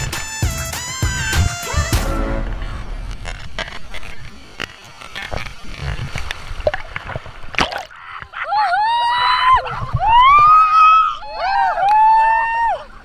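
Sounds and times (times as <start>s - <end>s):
high-pitched voice shrieking: 1.2s - 2.0s
water splashing and sloshing: 1.8s - 10.8s.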